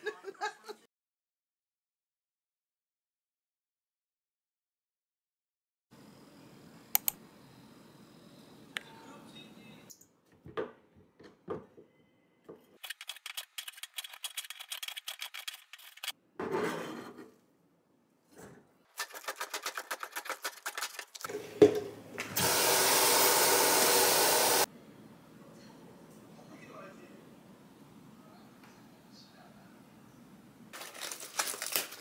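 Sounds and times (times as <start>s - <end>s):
tap water running into colander: 21.3s - 24.6s.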